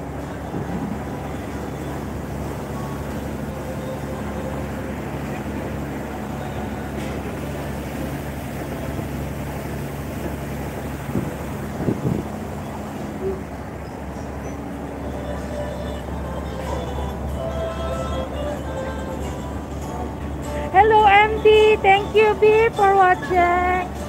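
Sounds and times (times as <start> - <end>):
boat engine humming: 0.0 - 24.0
water churning along hull: 0.0 - 24.0
wind on microphone: 10.9 - 13.6.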